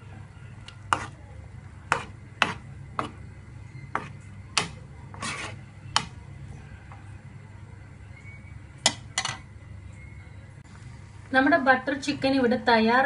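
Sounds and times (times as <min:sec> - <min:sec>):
low steady hum: 0:00.0 - 0:13.0
spoon scraping a pan: 0:00.8 - 0:01.2, 0:01.9 - 0:03.2, 0:03.8 - 0:06.1.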